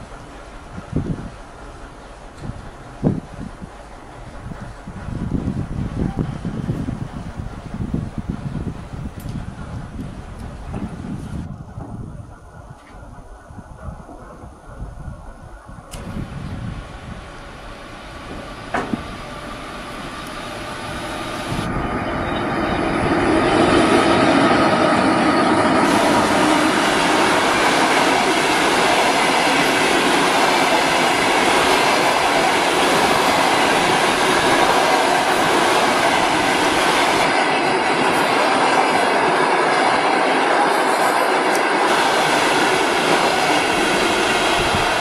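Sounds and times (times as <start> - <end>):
clickety-clack over rail joints: 0.0 - 14.8, 18.2 - 19.2, 43.0 - 45.0
train wheels rushing on rails: 0.0 - 45.0.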